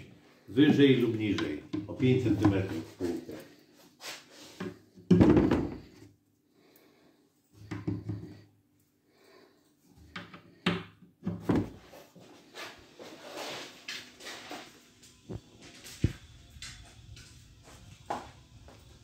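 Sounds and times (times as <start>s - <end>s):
wooden knocks and taps: 7.7s - 8.3s, 10.1s - 11.7s.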